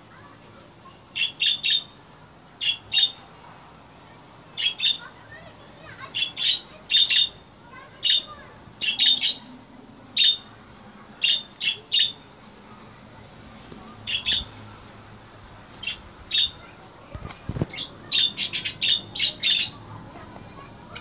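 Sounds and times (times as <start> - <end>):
budgerigars squawking: 14.1 - 14.5, 17.7 - 19.8.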